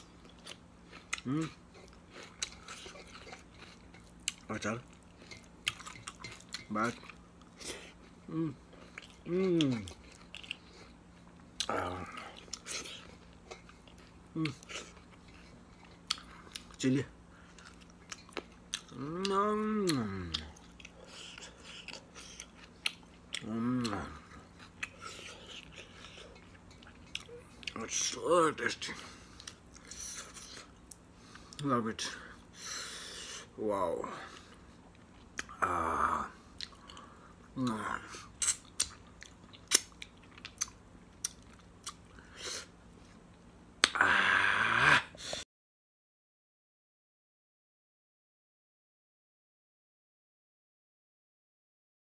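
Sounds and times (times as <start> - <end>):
wet chewing and lip-smacking: 0.1 - 28.0, 29.1 - 31.6, 34.3 - 35.6, 36.4 - 44.0
man humming: 1.2 - 1.6, 8.3 - 8.6, 9.3 - 9.9, 18.9 - 20.6, 23.4 - 24.3, 35.5 - 36.4, 43.8 - 45.4
man sighing: 43.9 - 45.4.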